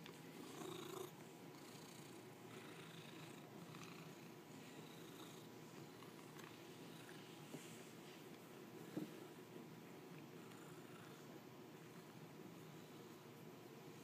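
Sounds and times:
cat purring: 0.3s - 7.8s.

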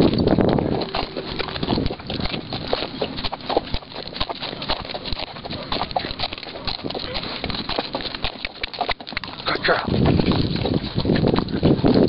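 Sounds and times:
hoofbeats on stony ground: 0.0s - 12.0s.

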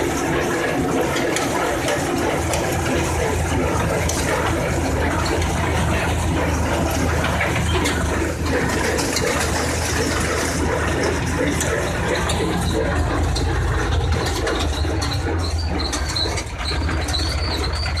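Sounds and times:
tractor engine under load: 0.0s - 18.0s
wavering high squeal: 14.1s - 18.0s.

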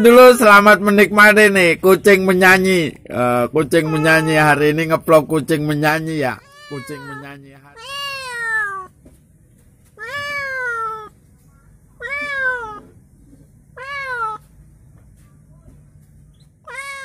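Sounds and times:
cat meowing: 3.6s - 4.9s, 6.2s - 9.0s, 9.9s - 11.2s, 11.9s - 13.0s, 13.7s - 14.5s, 16.6s - 17.0s.

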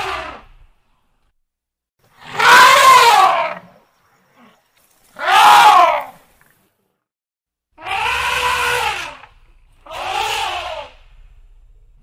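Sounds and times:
elephant trumpeting: 2.2s - 3.7s, 5.2s - 6.2s, 7.8s - 11.2s.

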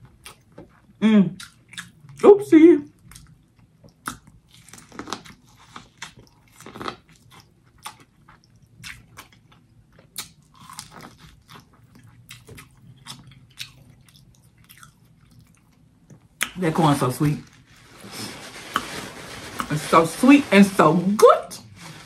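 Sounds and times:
person chewing corn on the cob: 0.0s - 2.2s, 3.0s - 16.6s.

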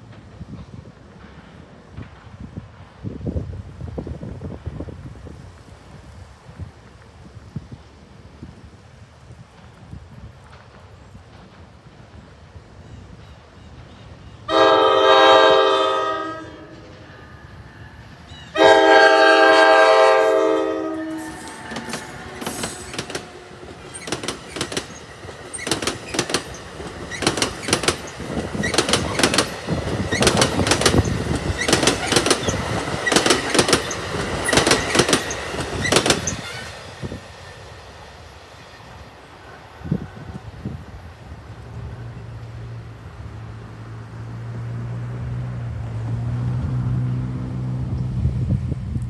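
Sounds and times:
train wheels clacking on rails: 0.0s - 3.7s, 9.2s - 15.1s, 16.6s - 40.5s
train chord horn blasts: 14.5s - 23.8s.

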